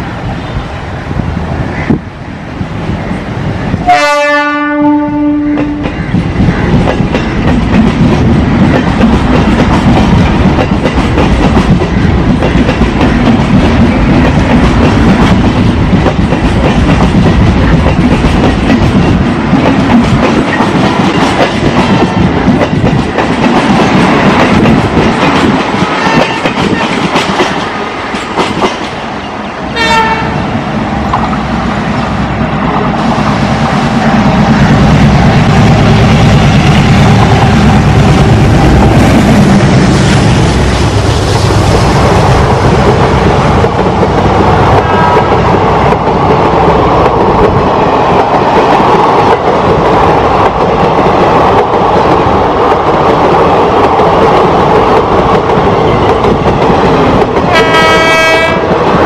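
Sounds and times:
train horn: 3.8s - 6.0s, 26.0s - 26.6s, 29.7s - 30.4s, 57.5s - 58.8s.

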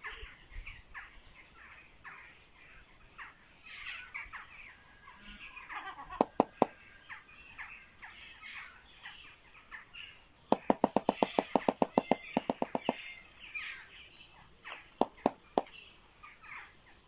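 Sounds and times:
small birds chirping faintly: 0.0s - 17.0s
bird bill clattering: 6.2s - 6.8s, 10.5s - 13.2s, 14.7s - 15.8s.

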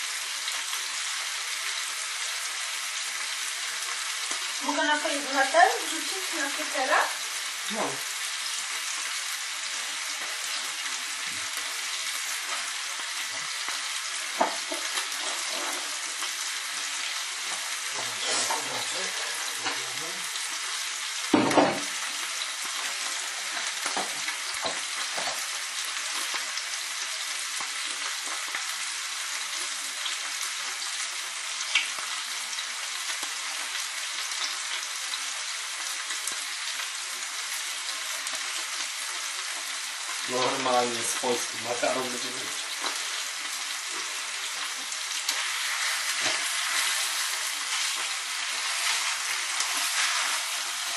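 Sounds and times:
meat sizzling in a frying pan: 0.0s - 50.9s
cooking knocks: 14.3s - 15.8s, 21.3s - 22.0s, 23.6s - 25.5s.

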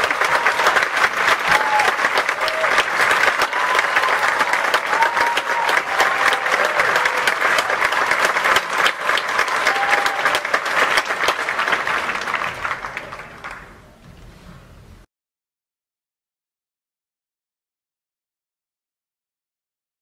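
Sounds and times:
audience applauding: 0.0s - 14.0s.

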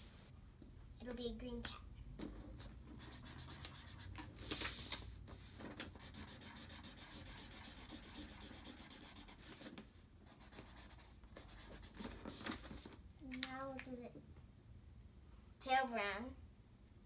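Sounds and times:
marker rubbing on paper: 2.2s - 12.9s.

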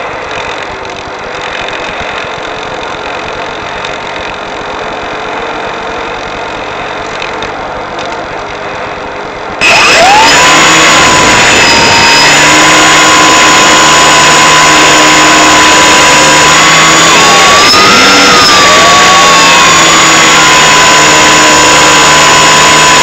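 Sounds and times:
electric motor whining: 9.6s - 23.0s.

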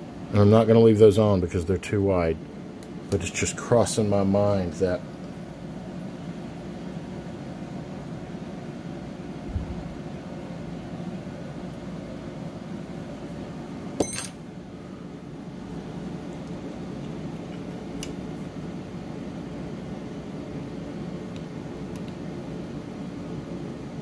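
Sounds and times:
low background hum: 0.0s - 24.0s
sharp ringing click: 14.0s - 14.4s.

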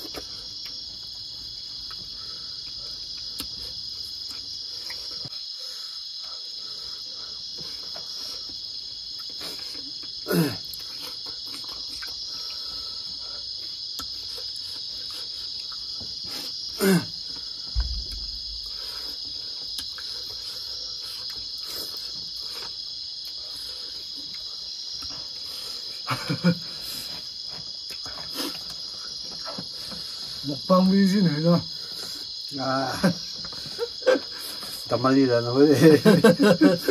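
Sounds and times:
crickets chirring: 0.0s - 36.9s
low thump: 17.7s - 18.9s.

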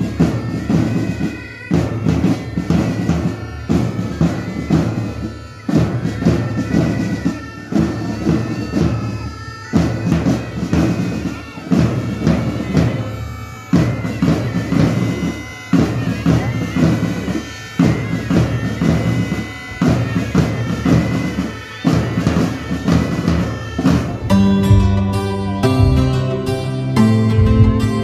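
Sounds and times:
bagpipes: 0.0s - 28.0s
bass drum beat: 24.1s - 28.0s
background music: 24.3s - 28.0s.

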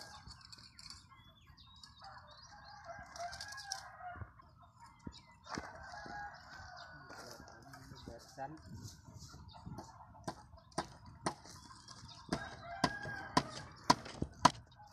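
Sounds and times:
rooster crowing: 12.4s - 13.7s.

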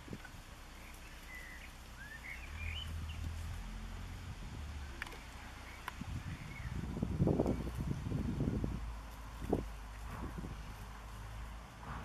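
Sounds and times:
small birds chirping: 0.0s - 11.6s
low steady rumble: 0.0s - 12.0s.

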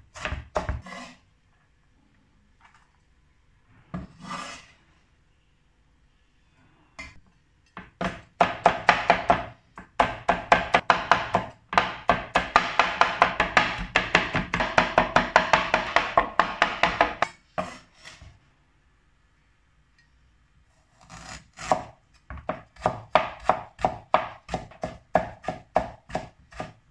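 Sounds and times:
blade scraping board: 0.8s - 1.2s, 4.0s - 4.7s
cleaver chopping on wooden board: 8.0s - 17.7s.

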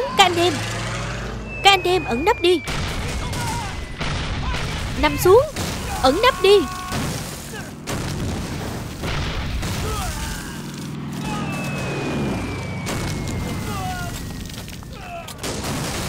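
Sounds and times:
men shouting: 0.0s - 1.1s, 3.2s - 7.8s, 9.8s - 11.8s
aircraft engines droning: 0.0s - 2.7s, 10.3s - 15.4s
falling bomb whistle: 1.3s - 4.1s, 11.2s - 15.0s
bombs exploding: 2.6s - 10.6s, 11.2s - 16.0s.

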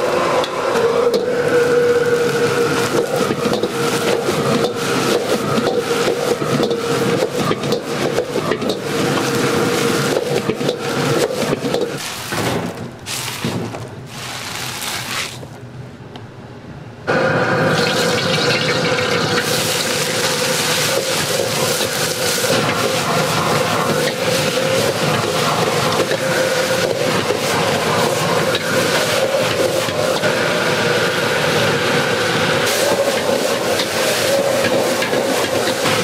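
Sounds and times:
hissing sizzle: 17.1s - 31.8s.

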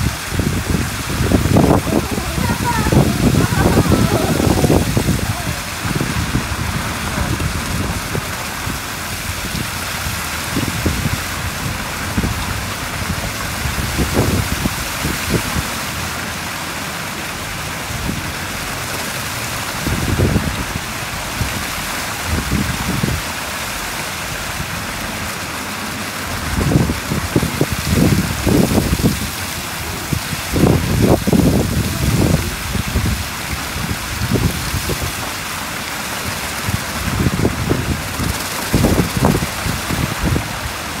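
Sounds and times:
low rumbling: 0.0s - 15.4s
heavy rain splashing on water: 0.0s - 41.0s.

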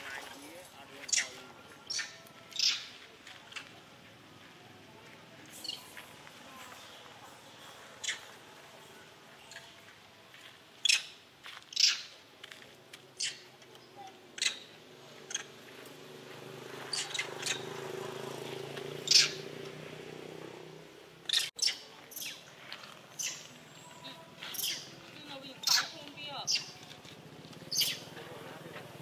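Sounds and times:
high-pitched animal squeaks: 1.0s - 3.7s, 5.5s - 6.0s, 8.0s - 8.3s, 10.8s - 12.1s, 13.2s - 13.5s, 14.4s - 14.7s, 16.9s - 17.6s, 19.1s - 19.4s, 21.3s - 22.4s, 23.1s - 25.0s, 25.6s - 26.8s, 27.7s - 28.1s.

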